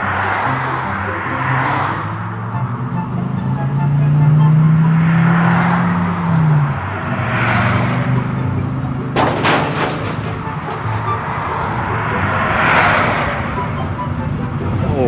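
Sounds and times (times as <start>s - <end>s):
truck engine drone: 0.0s - 15.0s
clattering burst: 9.2s - 11.6s.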